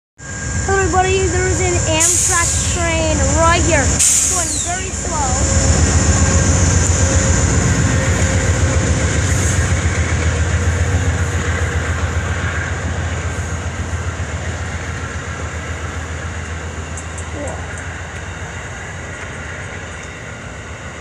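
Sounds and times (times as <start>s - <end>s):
diesel locomotive engine rumble: 0.2s - 21.0s
train cars rolling by: 0.2s - 21.0s.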